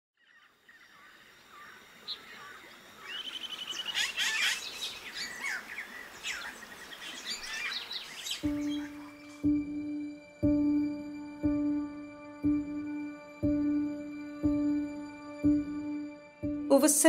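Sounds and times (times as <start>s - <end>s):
birds chirping and calling: 0.2s - 9.8s.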